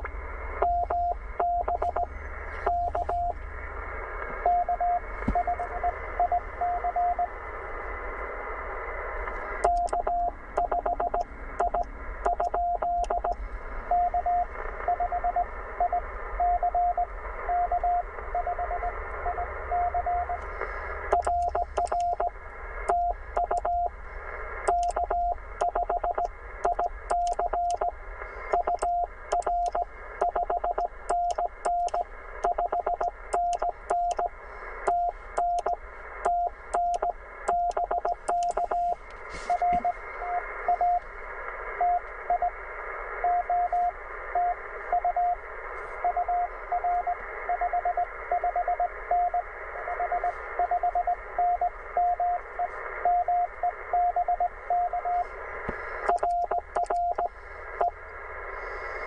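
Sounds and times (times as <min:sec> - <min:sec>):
radio band hiss: 0:01.2 - 0:04.4, 0:13.2 - 0:53.9, 0:54.5 - 0:59.0
morse code tone: 0:21.1 - 0:22.3, 0:28.5 - 0:34.3, 0:34.9 - 0:41.0
small clicks: 0:21.1 - 0:22.3, 0:56.1 - 0:57.3.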